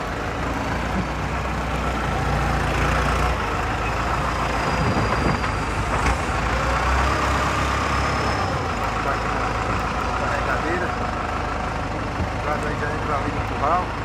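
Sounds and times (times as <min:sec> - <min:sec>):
diesel truck engine idling: 0:00.0 - 0:14.0.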